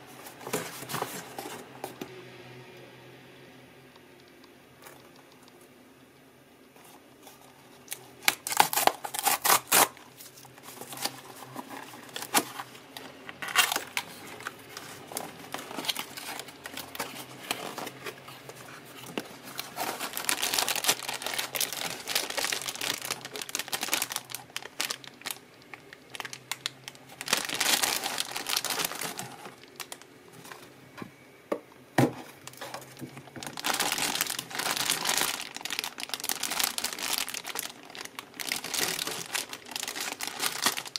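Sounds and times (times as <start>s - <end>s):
plastic bags crinkling: 7.2s - 30.6s, 32.5s - 40.9s.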